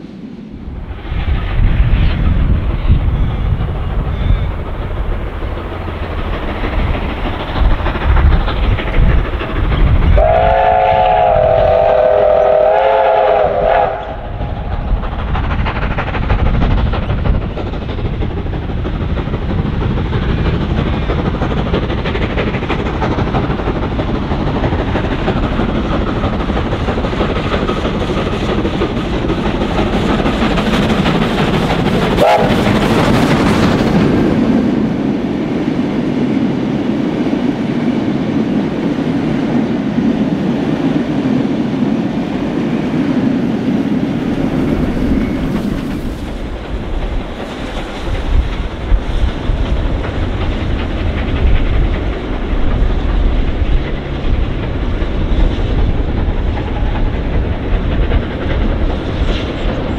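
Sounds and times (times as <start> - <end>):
steam locomotive exhaust rumbling: 0.0 - 59.9
steam whistle chord: 10.2 - 14.2.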